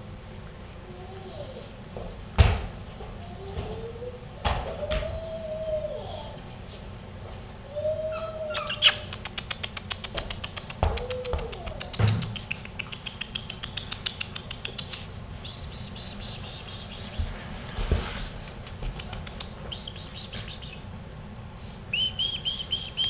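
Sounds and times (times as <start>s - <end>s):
puppies whining: 3.2s - 13.2s
rapid even clicking: 9.1s - 15.1s.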